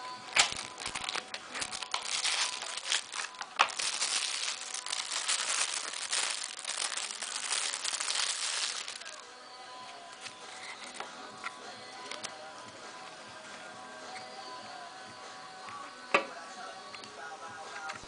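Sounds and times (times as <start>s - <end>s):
plastic bag crinkling: 0.3s - 9.2s.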